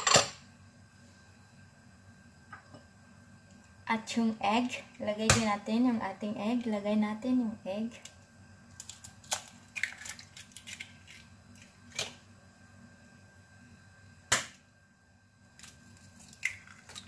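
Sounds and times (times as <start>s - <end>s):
egg cracking: 8.0s - 12.3s, 15.5s - 17.0s.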